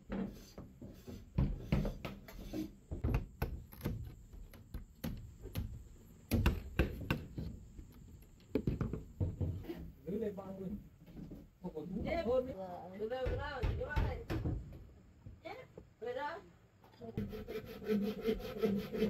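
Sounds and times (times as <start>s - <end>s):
hammer knocking on bamboo: 1.3s - 7.4s, 8.5s - 9.7s, 13.2s - 14.8s.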